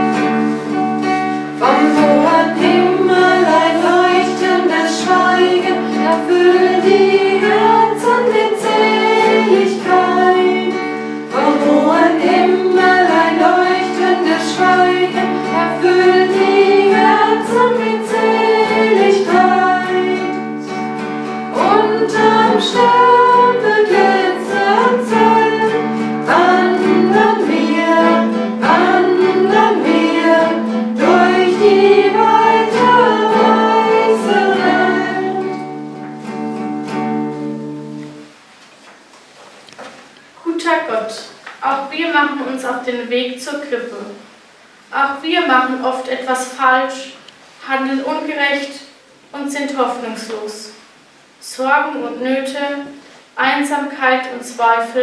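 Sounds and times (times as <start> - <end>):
nylon-string guitar: 0.0 - 38.4
women singing together: 1.6 - 20.8, 21.5 - 35.8.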